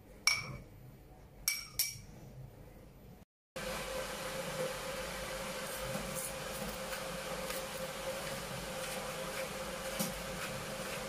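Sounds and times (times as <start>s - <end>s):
pot heating on stove hiss: 3.6s - 11.0s.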